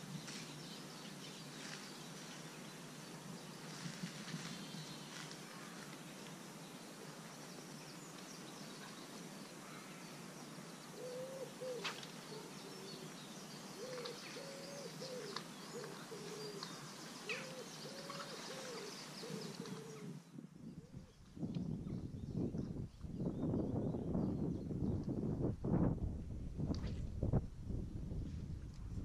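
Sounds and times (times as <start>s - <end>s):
faint small birds chirping: 0.0s - 25.4s
outdoor ambience: 0.0s - 29.0s
pigeon cooing: 11.0s - 11.9s, 13.8s - 16.7s, 17.3s - 20.2s.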